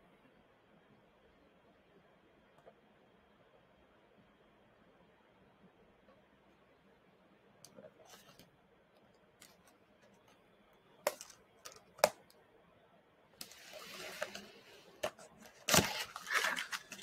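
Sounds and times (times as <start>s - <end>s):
cardboard scraping and rustling: 13.4s - 17.0s.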